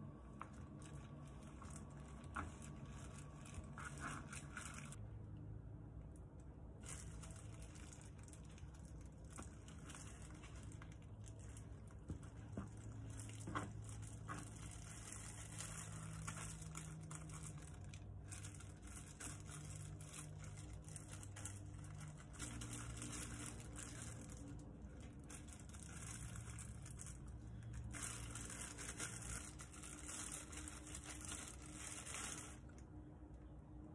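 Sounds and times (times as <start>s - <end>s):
plastic gloves crinkling: 0.0s - 5.1s, 6.1s - 33.3s
faint low hum: 0.0s - 33.9s.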